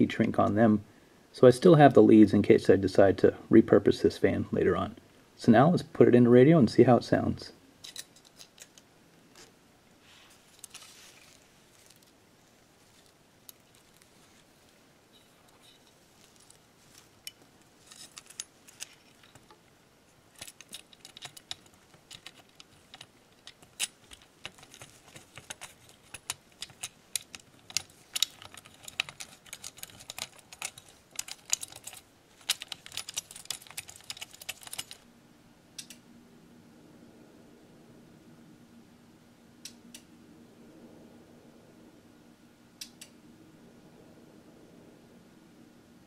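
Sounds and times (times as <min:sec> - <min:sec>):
faint steady hum: 0:00.0 - 0:46.0
small clicks and metallic rattles: 0:15.5 - 0:19.7, 0:20.3 - 0:35.0.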